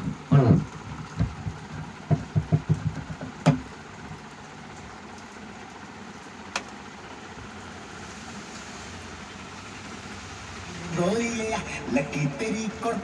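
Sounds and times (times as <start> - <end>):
amplifier hiss: 6.5 - 13.0.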